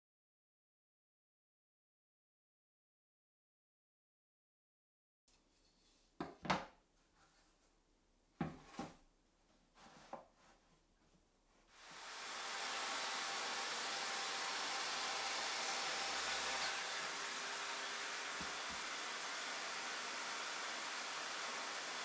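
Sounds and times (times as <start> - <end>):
wooden boards knocking on workbench: 6.2 - 6.7, 8.4 - 9.0
circular saw cutting board: 11.7 - 22.0.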